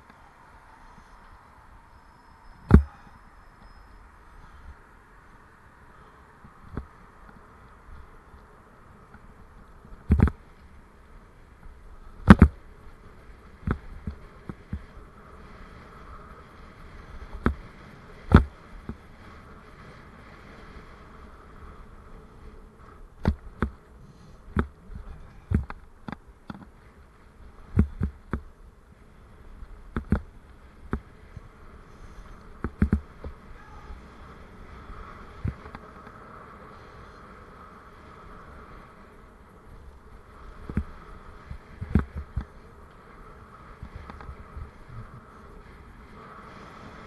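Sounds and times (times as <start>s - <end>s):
bike tyre buzzing hum: 0.0s - 47.0s
bike knocking and rattling: 6.0s - 20.2s, 22.7s - 28.8s, 29.5s - 37.6s, 39.2s - 46.0s.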